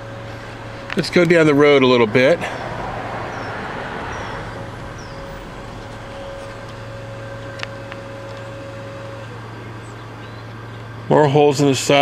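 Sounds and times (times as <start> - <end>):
faint steady whine: 0.0 - 12.0
low mechanical hum: 0.0 - 12.0.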